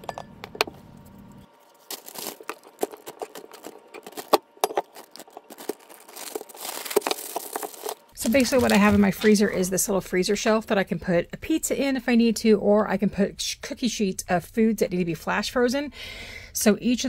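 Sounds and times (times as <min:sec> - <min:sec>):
plastic bag crinkling: 0:01.6 - 0:09.7.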